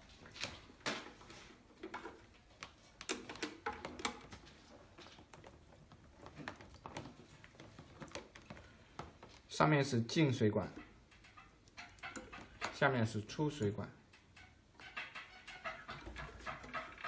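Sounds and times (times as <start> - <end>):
plastic hoses and pump handling clicks: 0.1 - 9.6.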